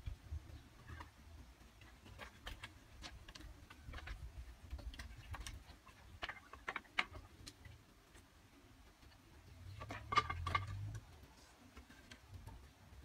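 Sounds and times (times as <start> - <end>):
bamboo pieces clicking and tapping: 0.2 - 8.3.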